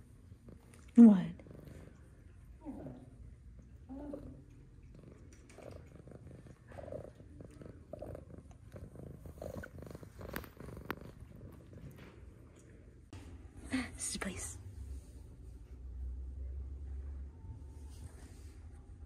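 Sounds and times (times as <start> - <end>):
cat purring: 0.0 - 13.1.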